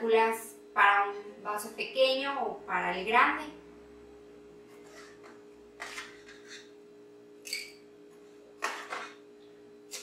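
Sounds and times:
metal spoon scraping a pot: 0:04.8 - 0:06.7.

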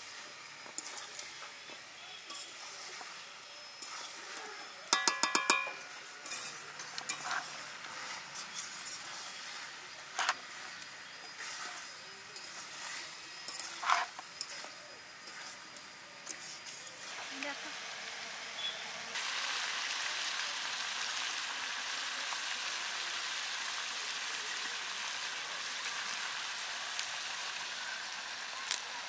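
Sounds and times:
metallic clinks against bowl: 0:04.9 - 0:06.4
knocks on bowl: 0:05.0 - 0:05.8.

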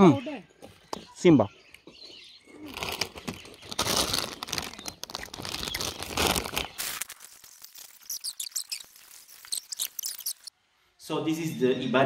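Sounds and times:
crackling and rustling at microphone: 0:02.6 - 0:10.5.

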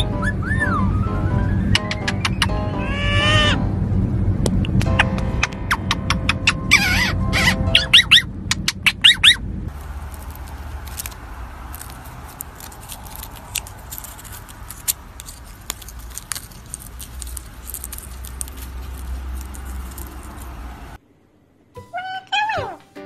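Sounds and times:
parakeet sharp calls: 0:01.8 - 0:03.6, 0:05.7 - 0:09.4.

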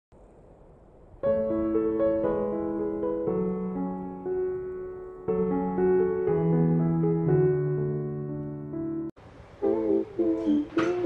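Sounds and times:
gentle solo piano: 0:01.2 - 0:09.1.

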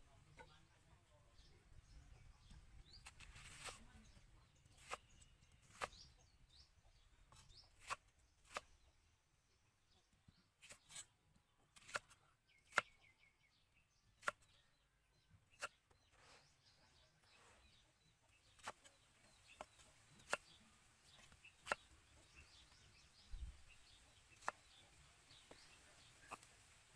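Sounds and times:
knife chopping onion on wood: 0:04.7 - 0:06.3, 0:07.3 - 0:08.8, 0:11.8 - 0:13.0, 0:14.2 - 0:14.6, 0:18.5 - 0:22.6, 0:24.0 - 0:26.5.

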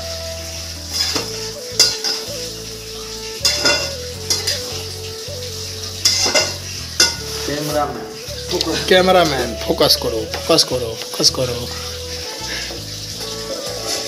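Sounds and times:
meat sizzling: 0:00.0 - 0:14.0
metal spatula scraping a pan: 0:00.8 - 0:02.6, 0:03.4 - 0:04.9, 0:06.0 - 0:08.0, 0:11.7 - 0:14.0.

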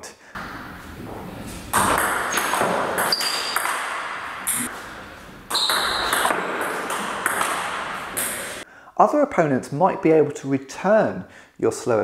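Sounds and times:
ping pong ball clicks: 0:05.5 - 0:08.6.

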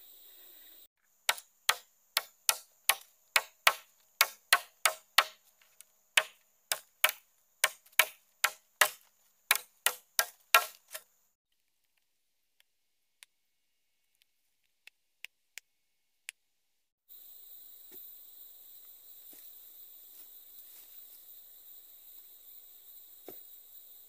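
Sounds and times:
machete chopping bamboo: 0:01.3 - 0:11.1.

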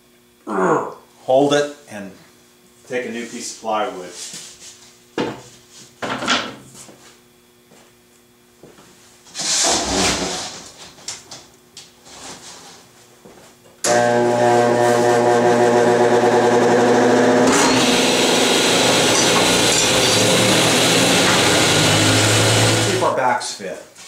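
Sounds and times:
motor humming: 0:13.8 - 0:23.1
saw blade whirring: 0:13.9 - 0:23.1.

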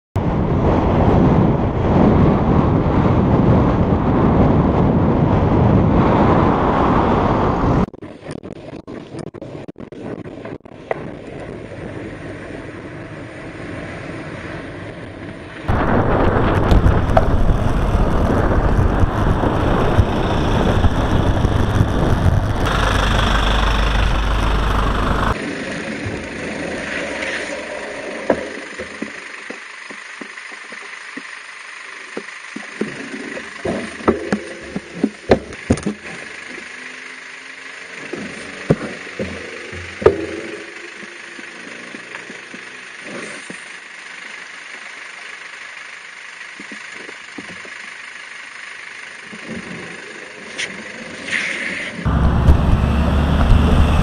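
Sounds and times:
wind buffeting microphone: 0:00.2 - 0:07.9, 0:15.7 - 0:25.4, 0:52.1 - 0:54.0
motor traffic: 0:12.0 - 0:54.0
truck engine idling: 0:15.7 - 0:25.4, 0:28.7 - 0:33.6, 0:52.1 - 0:54.0.

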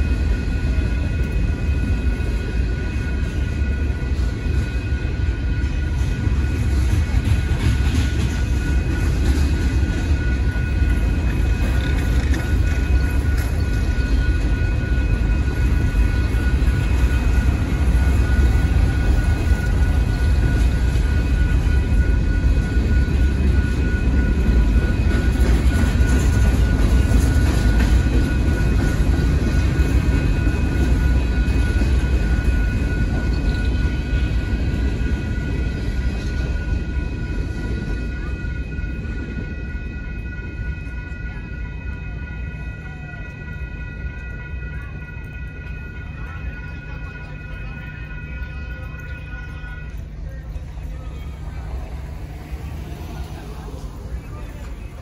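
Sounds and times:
railroad crossing bell ringing: 0:00.0 - 0:55.0
train wheels rumbling on rails: 0:00.0 - 0:55.0.

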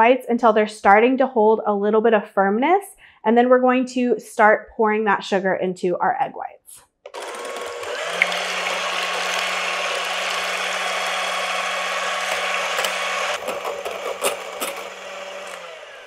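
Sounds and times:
electric hand mixer whirring: 0:07.1 - 0:16.0
mixer clicks: 0:07.1 - 0:16.0.

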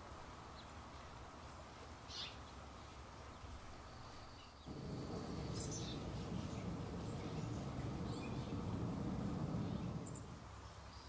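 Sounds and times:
high bird chirps: 0:04.7 - 0:10.4
faint low hum: 0:04.7 - 0:10.7.

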